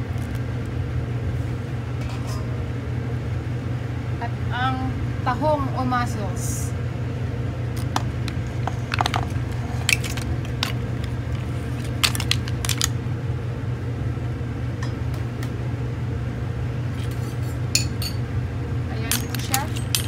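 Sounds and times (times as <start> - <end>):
steady low hum: 0.0 - 20.0
mussel shells clattering into pot: 7.8 - 13.0, 19.0 - 20.0.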